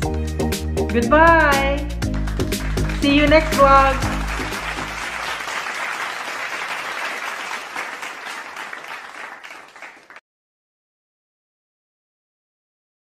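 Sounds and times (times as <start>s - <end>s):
crowd clapping: 2.0s - 10.2s.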